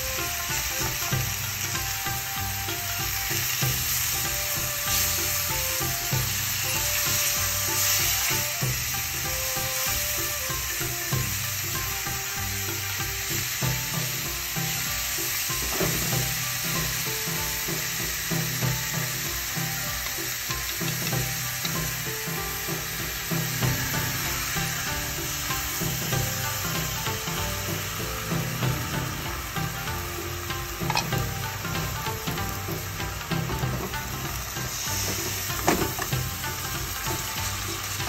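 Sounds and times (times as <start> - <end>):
pork sizzling in a frying pan: 0.0 - 38.0
chopsticks tapping and scraping: 20.0 - 23.9, 30.7 - 32.5.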